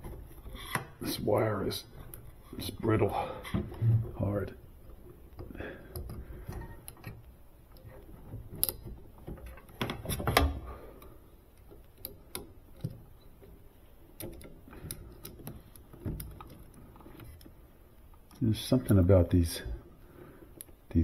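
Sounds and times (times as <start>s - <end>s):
small metal parts clicking: 5.3s - 10.2s.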